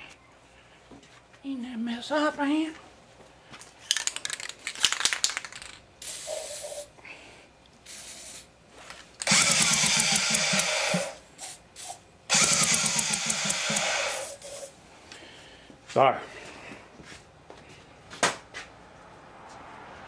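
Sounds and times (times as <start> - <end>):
aerosol spray can hissing: 6.0 - 6.9, 7.8 - 8.5, 9.2 - 14.8
outboard engine cranking: 9.2 - 10.7, 12.3 - 13.9.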